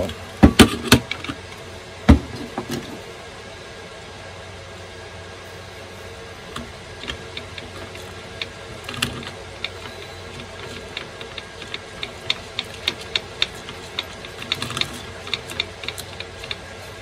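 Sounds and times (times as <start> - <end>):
metal parts clicking: 6.6 - 16.7.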